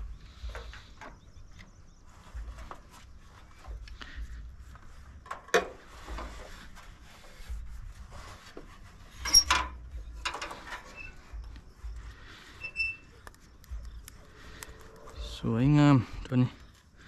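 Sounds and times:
low rumble: 13.7 - 16.3.

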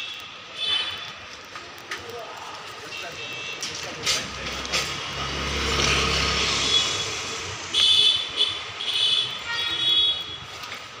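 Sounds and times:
vehicle rumbling past: 3.8 - 7.7.

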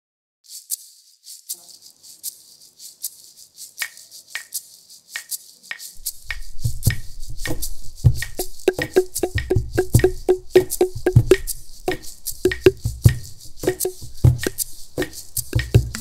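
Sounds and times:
maracas shaking: 0.4 - 16.0
claves clicking: 1.2 - 16.0
low drum: 6.0 - 16.0.

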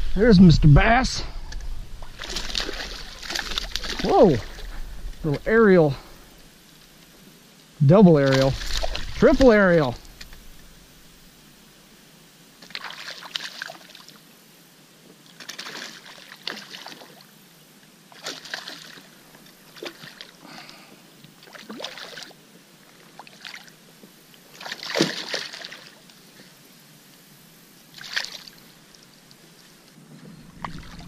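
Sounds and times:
fish thrashing and splashing: 2.0 - 5.4, 8.2 - 11.1, 12.6 - 14.0, 15.4 - 17.2, 18.1 - 20.4, 24.5 - 26.0, 28.0 - 28.6, 30.5 - 31.0.

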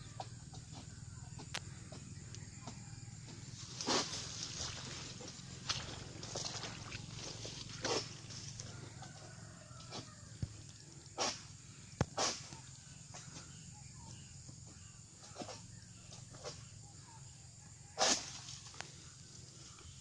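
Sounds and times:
sickle cutting strokes: 2.6 - 8.7, 11.2 - 11.5, 12.1 - 12.7, 18.0 - 18.7
palm fronds rustling: 3.2 - 11.5.

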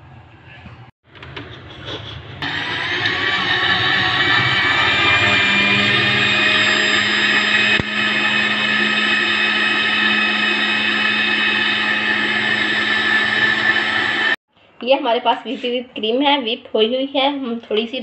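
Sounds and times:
blender motor running: 2.4 - 14.4.

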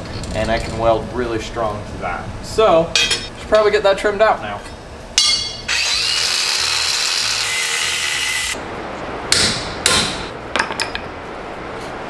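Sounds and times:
angle grinder cutting metal: 5.6 - 8.6.

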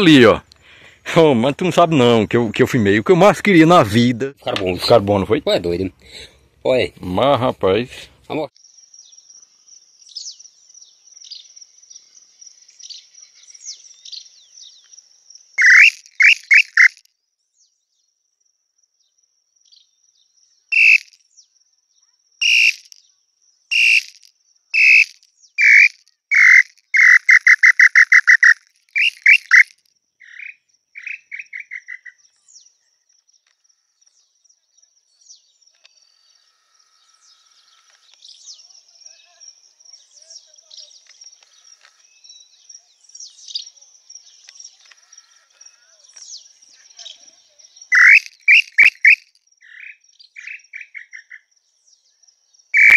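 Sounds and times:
wooden bird call whistled notes: 15.6 - 17.0, 20.7 - 21.2, 22.4 - 23.0, 23.7 - 30.4, 47.9 - 49.3
high insect drone: 20.7 - 21.2, 22.4 - 28.4.

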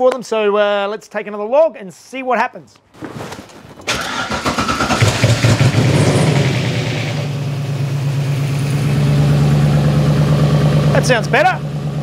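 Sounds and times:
car engine starting and idling: 3.9 - 12.0.

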